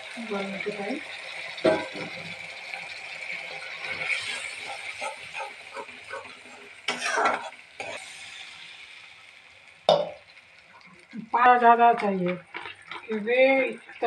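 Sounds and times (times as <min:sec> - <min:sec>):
frying sizzle: 0:00.0 - 0:14.0
water poured into hot pan: 0:00.0 - 0:14.0
spatula scraping a pan: 0:03.8 - 0:08.4.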